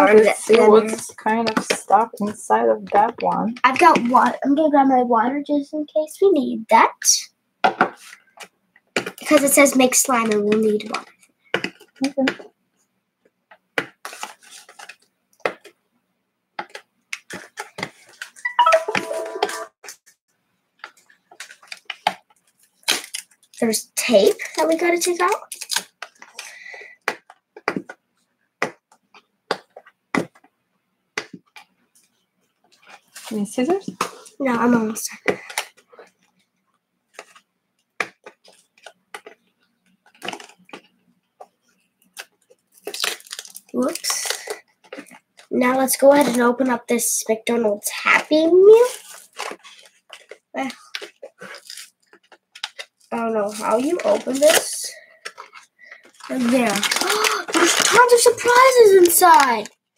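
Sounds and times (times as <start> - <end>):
small clicks and scratches: 37.1 - 45.5, 48.8 - 59.8.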